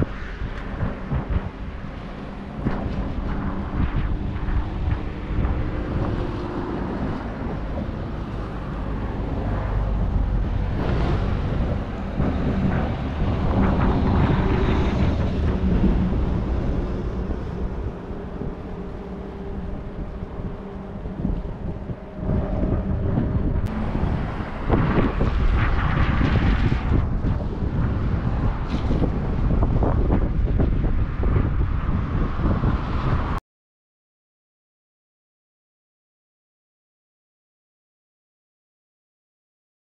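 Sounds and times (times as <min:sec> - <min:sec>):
engine and traffic rumble: 0:00.0 - 0:33.4
wind buffeting microphone: 0:00.0 - 0:33.4
vehicle passing: 0:03.0 - 0:28.3.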